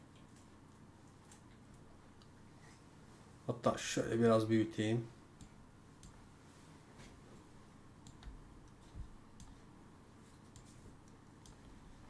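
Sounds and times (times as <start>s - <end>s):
computer mouse clicks: 8.0s - 9.6s, 10.5s - 11.7s
soft low thumps: 8.2s - 9.2s.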